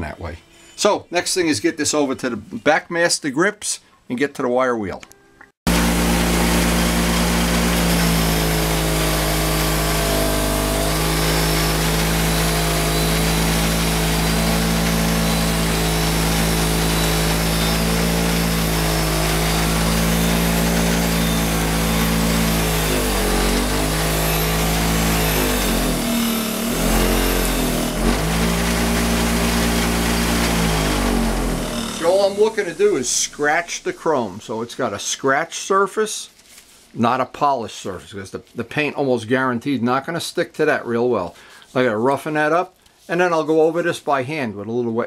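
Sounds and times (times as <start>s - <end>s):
bench grinder wire wheel scratching: 5.7s - 33.9s.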